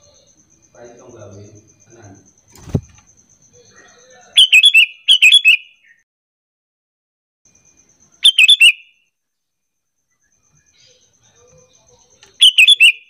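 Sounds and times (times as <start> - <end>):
bulbul calls: 0.0 - 6.0, 8.0 - 9.0, 10.1 - 13.0.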